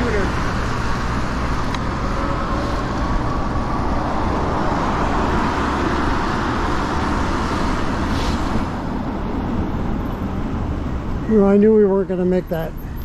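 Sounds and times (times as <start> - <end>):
car traffic: 0.0 - 13.0
tyre hiss on wet pavement: 7.7 - 8.7.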